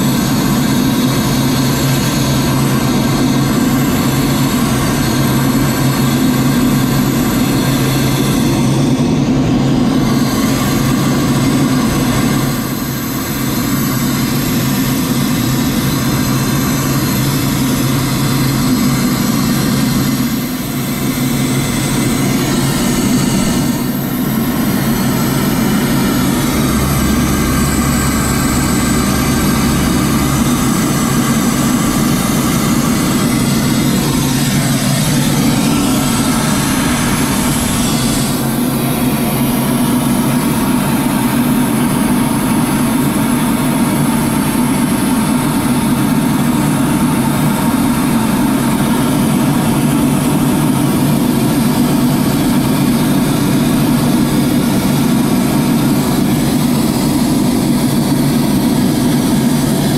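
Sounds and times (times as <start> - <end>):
aircraft engine hum: 0.0 - 59.9
falling whine: 0.0 - 59.9
airflow hiss: 18.5 - 44.2.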